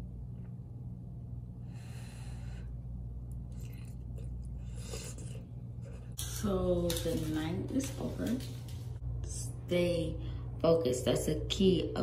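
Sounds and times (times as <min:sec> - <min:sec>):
steady low hum: 0:00.0 - 0:12.0
person chewing: 0:03.5 - 0:06.2.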